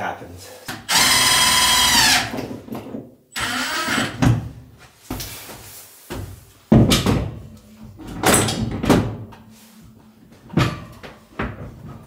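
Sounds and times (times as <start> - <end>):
knocks and clunks of plumbing fittings: 2.2 - 5.3, 6.1 - 9.4, 10.4 - 12.0.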